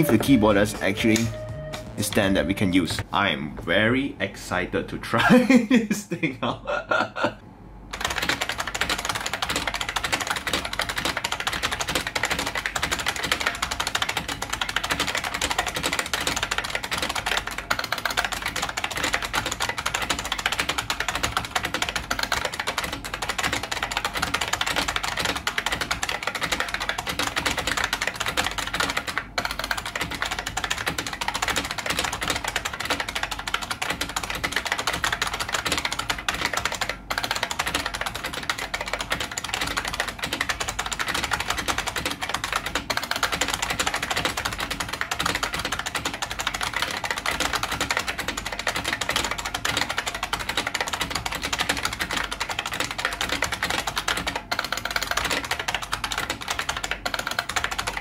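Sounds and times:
fast keyboard typing: 0:00.0 - 0:03.0, 0:07.9 - 0:58.0.

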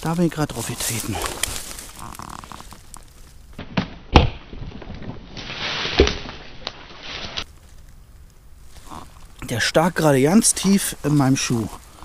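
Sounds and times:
dry leaves rustling: 0:00.0 - 0:03.6, 0:05.2 - 0:09.0, 0:09.8 - 0:12.0.

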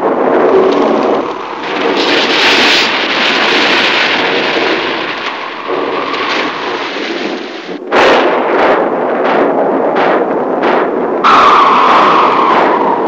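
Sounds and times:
loud continuous hissing noise: 0:00.0 - 0:07.9.

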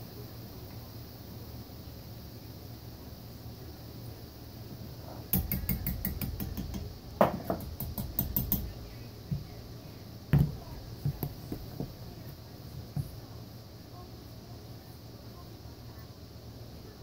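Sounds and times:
knock on stovetop: 0:05.3 - 0:08.7, 0:10.3 - 0:12.0.

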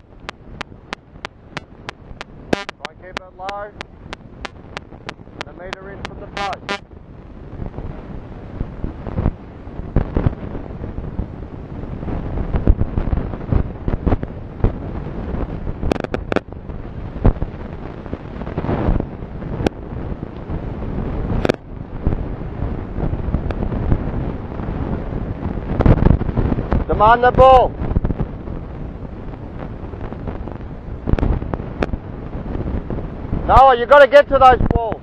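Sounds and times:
wind buffeting microphone: 0:00.0 - 0:35.0
sharp pops and knocks: 0:15.8 - 0:16.5, 0:21.4 - 0:21.6.

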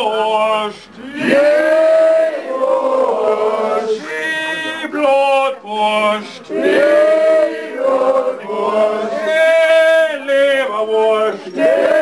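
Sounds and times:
man singing a chant: 0:00.0 - 0:01.2, 0:08.9 - 0:11.6.

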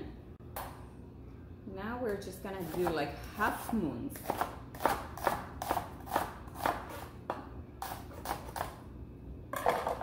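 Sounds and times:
knife chopping on wooden board: 0:02.6 - 0:03.0, 0:03.6 - 0:08.8.

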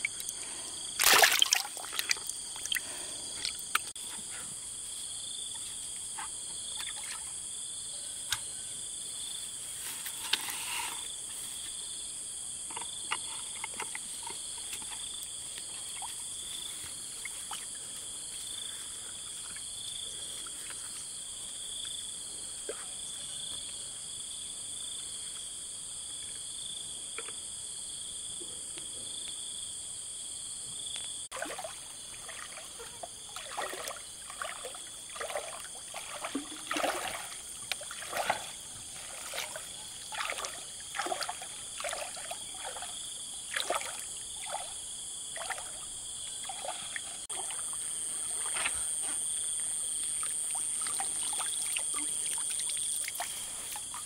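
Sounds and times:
high-pitched insect chorus: 0:00.0 - 0:54.0
water splash: 0:01.0 - 0:03.8, 0:31.3 - 0:45.8.

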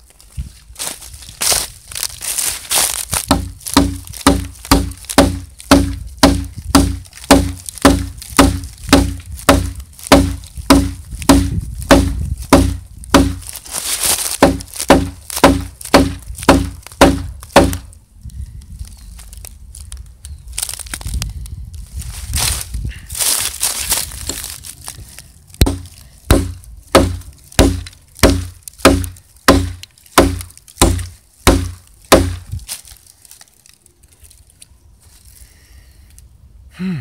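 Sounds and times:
rustling in dry leaves: 0:00.0 - 0:36.1
hatchet chopping log: 0:03.1 - 0:13.6, 0:14.3 - 0:17.9, 0:25.6 - 0:32.5.

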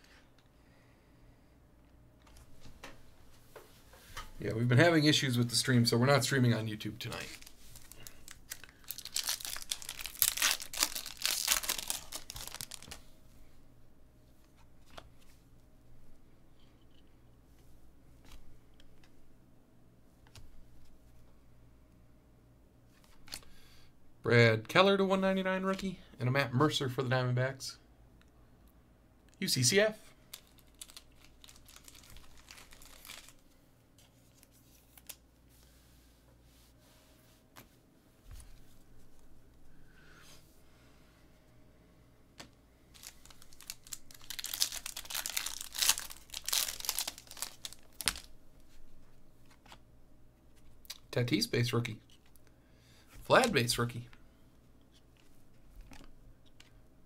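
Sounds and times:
foil wrapper tearing and crinkling: 0:07.2 - 0:13.0, 0:30.3 - 0:33.4, 0:42.9 - 0:48.3.

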